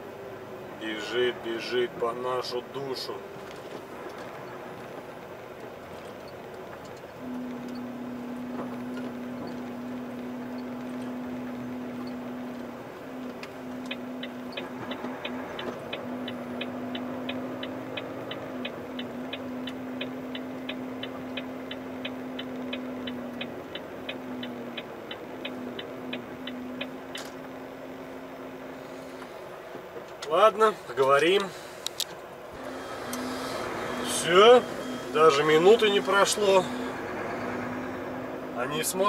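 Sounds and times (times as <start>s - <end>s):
indicator relay ticking: 6.3s - 28.3s, 32.6s - 38.3s
steady low hum: 30.7s - 39.0s.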